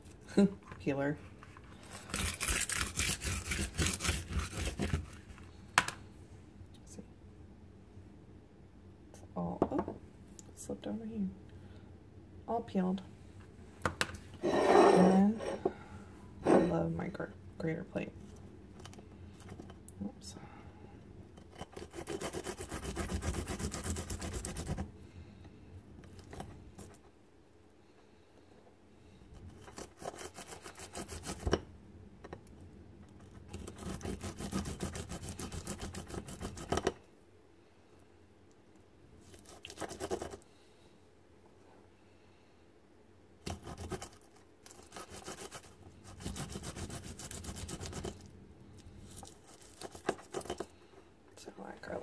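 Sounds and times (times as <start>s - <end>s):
garlic grating on ceramic plate: 1.9s - 5.2s, 21.4s - 24.8s, 29.6s - 31.5s, 33.2s - 36.9s, 39.3s - 40.4s, 43.4s - 48.3s, 49.1s - 50.7s.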